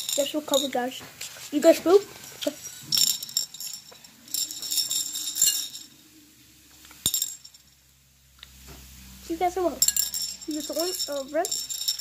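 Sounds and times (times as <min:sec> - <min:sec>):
light metallic jingling: 0:02.2 - 0:06.0, 0:09.8 - 0:12.0.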